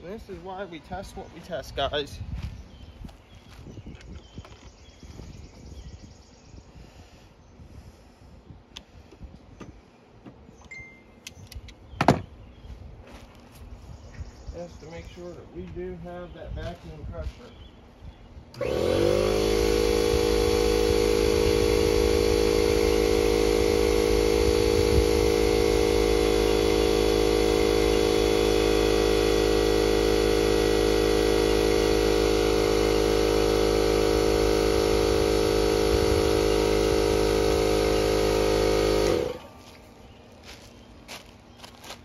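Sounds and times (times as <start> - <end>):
compressed air hissing with a whine: 18.6 - 39.5.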